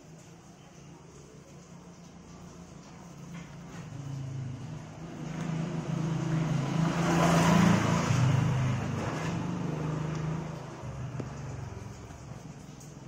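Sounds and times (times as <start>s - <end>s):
vehicle engine passing by: 3.1s - 13.0s.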